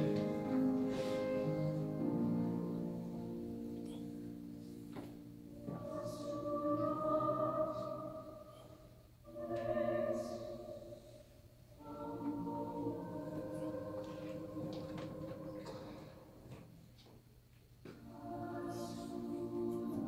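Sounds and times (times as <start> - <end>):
mixed choir singing: 5.6 - 16.4, 18.0 - 20.0.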